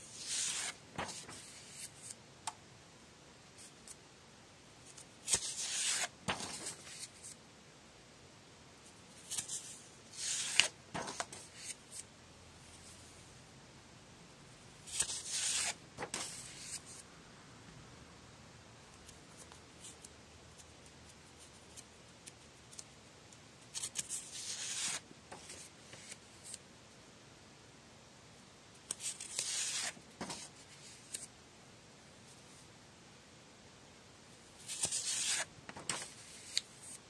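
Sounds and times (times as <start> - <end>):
paper pages rustling: 0.1 - 2.2, 4.9 - 7.4, 9.2 - 12.0, 14.9 - 17.0, 23.8 - 26.6, 28.9 - 31.3, 34.6 - 37.0.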